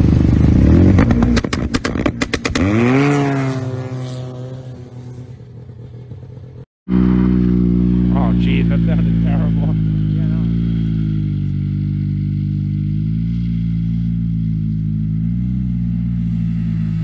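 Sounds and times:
sharp engine pops: 0:01.0 - 0:02.8
snowmobile engine running hard: 0:06.9 - 0:11.7.

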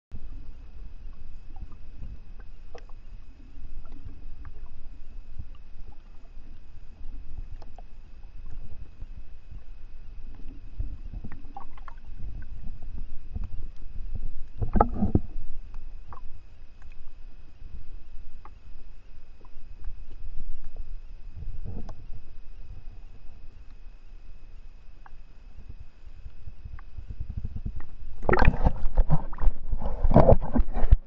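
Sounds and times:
faint steady high whine: 0:00.1 - 0:31.0
underwater water rumble: 0:00.1 - 0:31.0
faint clicks: 0:01.0 - 0:04.8, 0:13.3 - 0:22.2, 0:23.0 - 0:29.1.

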